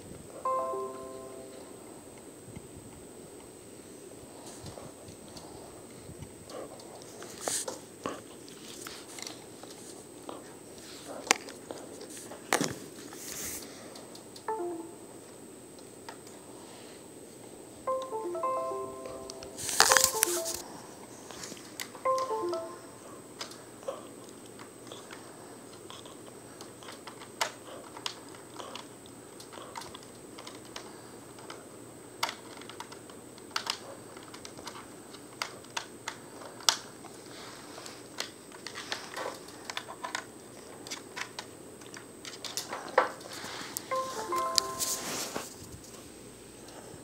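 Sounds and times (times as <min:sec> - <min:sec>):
faint steady hiss: 0:00.0 - 0:26.7, 0:40.4 - 0:47.0
stepped beeping notes: 0:00.5 - 0:01.9, 0:14.5 - 0:15.1, 0:17.9 - 0:20.6, 0:22.0 - 0:23.1, 0:43.9 - 0:45.4.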